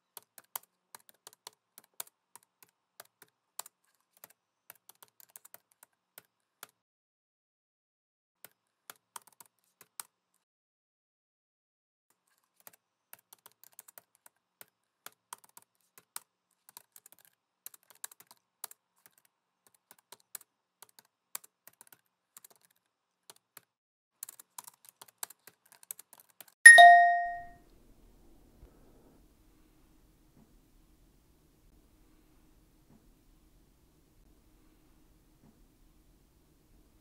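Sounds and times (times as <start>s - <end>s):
laptop keyboard typing: 0.1s - 6.8s, 8.4s - 10.1s, 12.4s - 27.4s
loud ringing ding: 26.7s - 27.5s.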